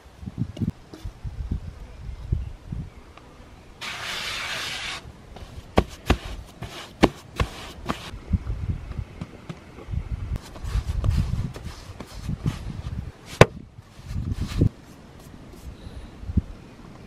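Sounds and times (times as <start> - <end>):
hands rubbing dough: 3.8 - 8.1.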